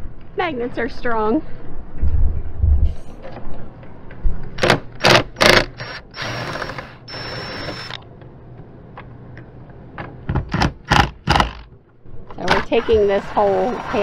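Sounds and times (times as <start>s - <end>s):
cordless drill whining: 5.4s - 8.0s.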